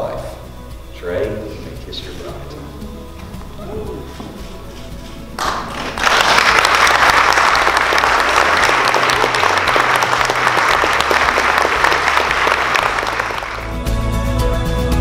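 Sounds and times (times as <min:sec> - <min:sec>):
people applauding: 0:05.4 - 0:13.8.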